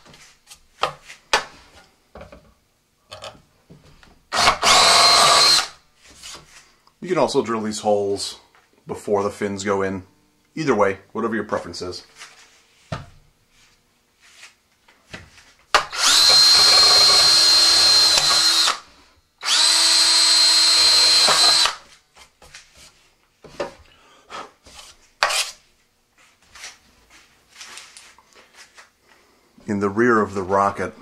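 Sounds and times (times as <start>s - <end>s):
cordless drill whining: 4.3s - 5.8s, 15.8s - 21.9s.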